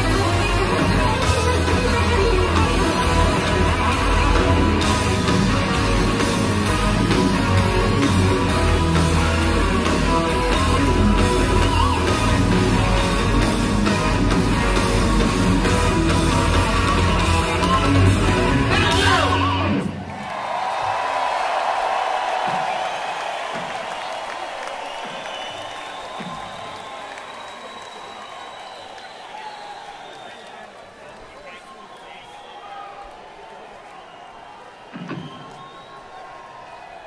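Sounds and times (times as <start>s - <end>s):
heavy metal band playing: 0.0s - 20.0s
sliding guitar sweep: 0.0s - 20.0s.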